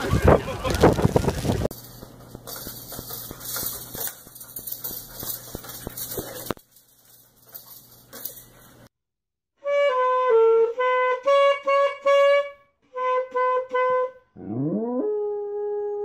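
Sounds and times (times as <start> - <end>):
dog howling: 14.4 - 16.0.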